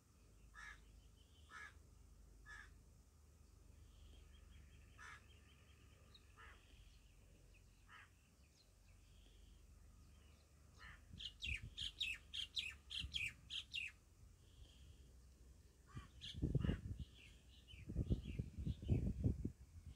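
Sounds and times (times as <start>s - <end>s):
birds chirping: 3.4s - 19.2s.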